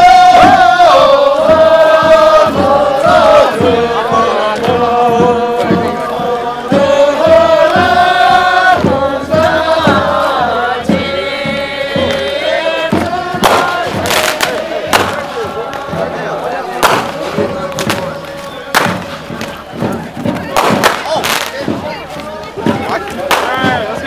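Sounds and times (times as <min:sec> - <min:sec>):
group of voices singing: 0:00.0 - 0:24.0.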